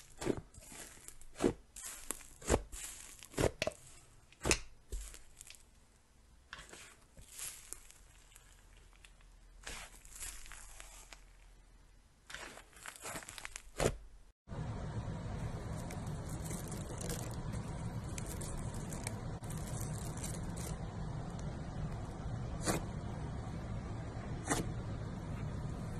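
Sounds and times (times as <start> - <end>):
slime crackling and tearing: 0.0 - 5.8, 6.6 - 11.6, 12.2 - 14.1, 15.7 - 20.9
cereal crackling in slime: 0.0 - 6.0, 6.6 - 14.1, 15.4 - 22.8
low hum: 14.5 - 25.9.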